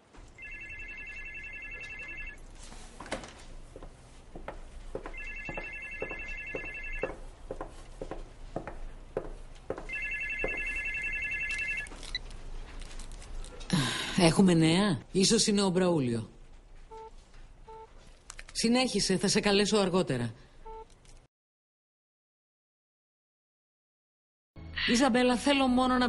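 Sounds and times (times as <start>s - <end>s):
phone ringtone trilling: 0.4s - 2.4s, 5.2s - 7.1s, 9.9s - 12.0s.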